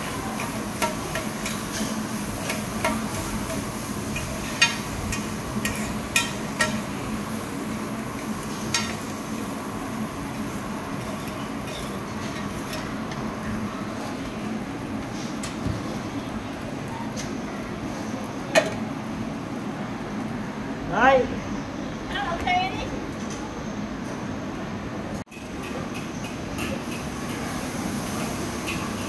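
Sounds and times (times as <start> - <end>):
omelette sizzling on griddle: 0.0 - 19.5, 25.3 - 29.0.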